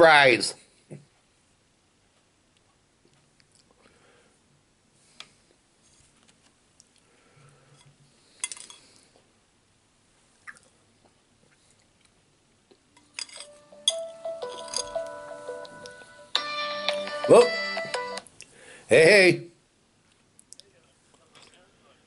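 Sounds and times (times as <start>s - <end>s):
spoon clinking ceramic bowl: 13.0s - 15.1s
phone ringtone melody: 13.4s - 18.2s.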